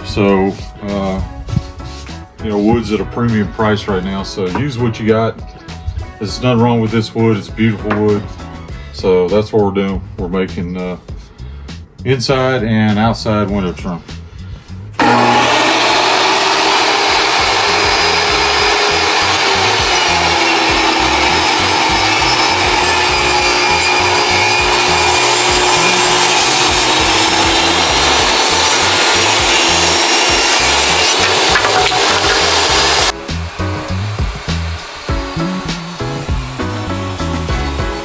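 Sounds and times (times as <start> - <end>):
table saw cutting wood: 15.0 - 38.0.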